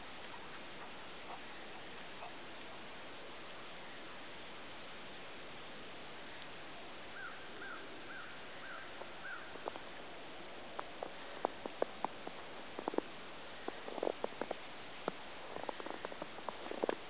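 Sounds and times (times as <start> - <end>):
bird calling: 7.1 - 9.6
footsteps crunching in snow: 10.8 - 17.0.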